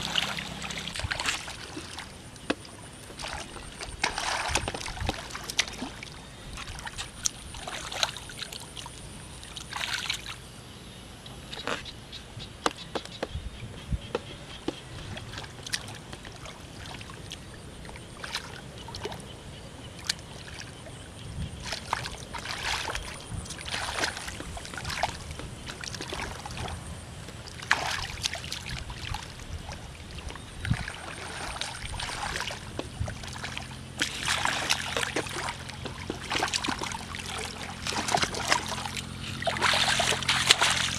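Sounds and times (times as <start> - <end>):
hands splashing in mud and water: 0.0 - 8.7, 21.6 - 26.8, 27.5 - 29.8, 30.6 - 40.9.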